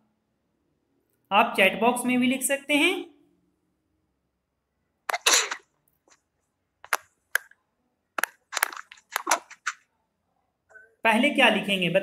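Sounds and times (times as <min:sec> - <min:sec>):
short crackling bursts: 0:05.1 - 0:05.8.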